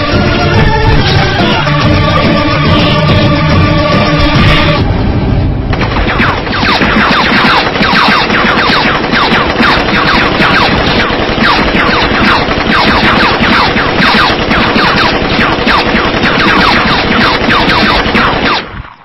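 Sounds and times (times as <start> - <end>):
rapid gunfire with whines: 5.7 - 19.0.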